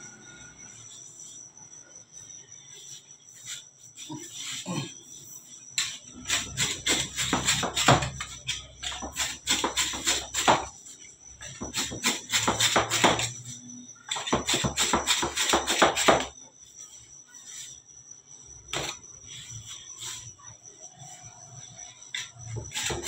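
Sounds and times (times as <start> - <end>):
bench scraper knocking on steel table: 6.8 - 8.3, 9.0 - 10.7, 11.6 - 13.3.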